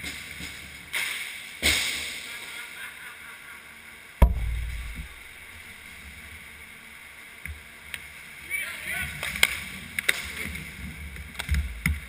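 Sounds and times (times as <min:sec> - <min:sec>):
sharp knock on hockey goal: 0:04.2 - 0:05.7
low rumble: 0:04.2 - 0:06.5.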